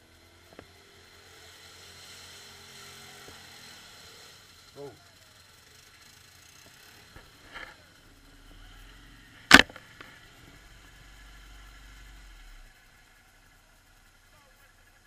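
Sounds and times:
atv engine running low: 0.0s - 15.0s
sharp knock: 9.5s - 9.8s.

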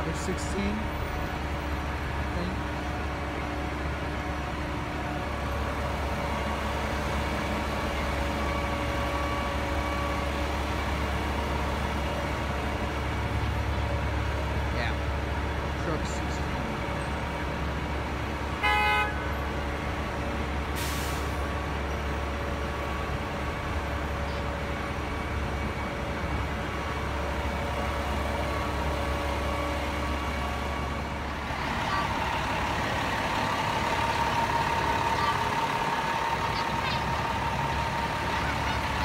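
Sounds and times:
diesel engines running: 0.0s - 39.0s
fire truck horn blast: 18.5s - 19.6s.

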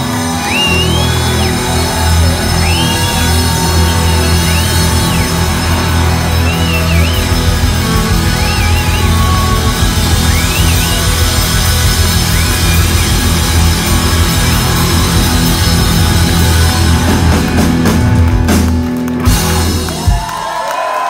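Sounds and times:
live rock band playing: 0.0s - 20.6s.

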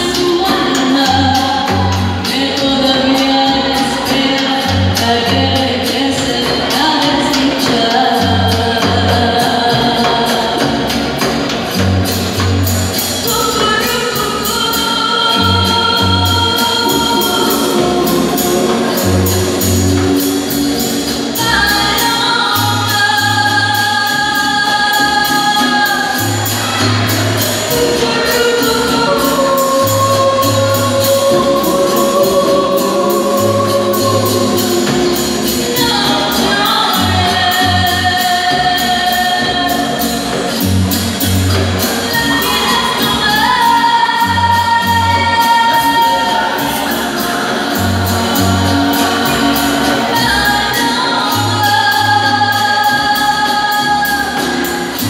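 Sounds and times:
live band playing: 0.0s - 55.0s
repeating bass line: 0.0s - 55.0s
group singing: 14.2s - 40.6s, 41.5s - 55.0s.

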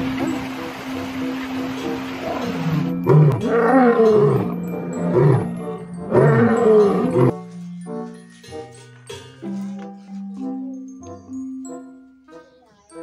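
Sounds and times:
lion roaring: 2.2s - 7.4s.

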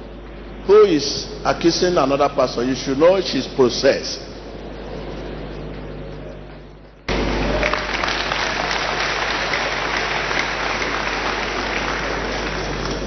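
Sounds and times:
congregation applauding: 7.1s - 13.0s.

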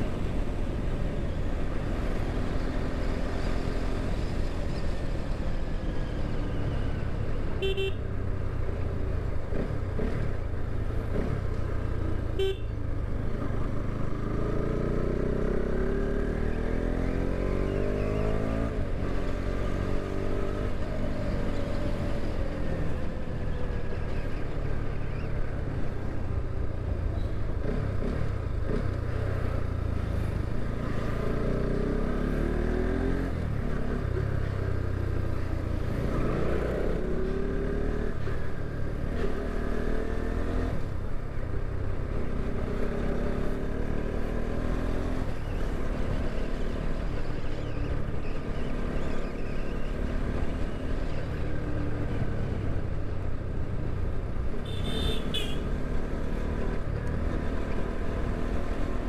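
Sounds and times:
horn beep: 12.4s - 12.7s.

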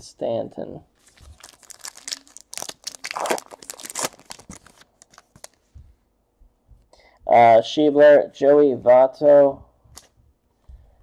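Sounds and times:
wrapper tearing and crinkling: 1.0s - 5.6s.

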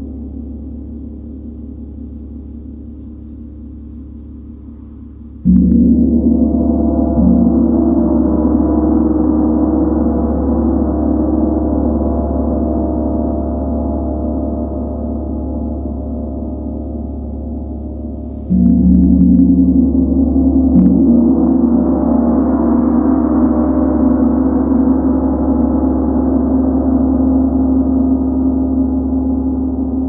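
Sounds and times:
gong struck with a mallet: 5.4s - 17.0s, 17.9s - 30.0s.

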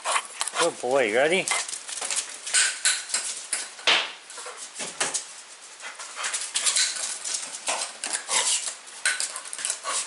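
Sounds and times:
dog scrambling on concrete: 0.0s - 10.0s.

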